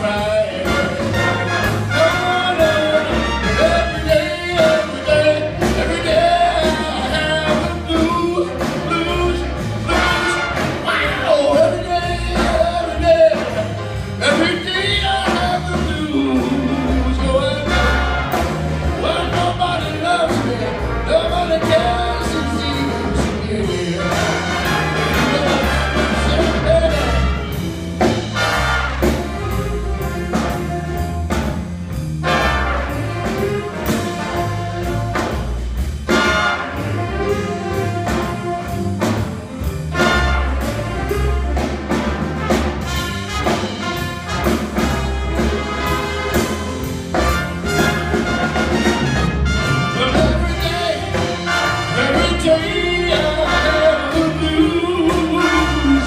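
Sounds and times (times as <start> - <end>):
man singing: 0.0 - 18.2, 18.9 - 27.6, 49.7 - 56.0
big band playing blues: 0.0 - 56.0.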